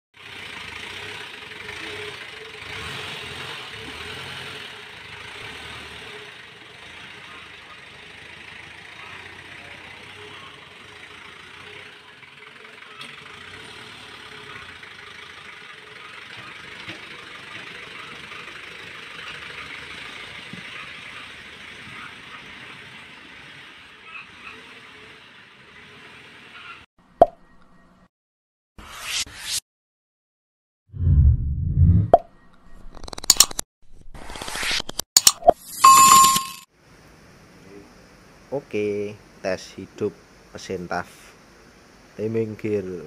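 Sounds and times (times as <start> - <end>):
diesel engine running: 0.2 - 23.6.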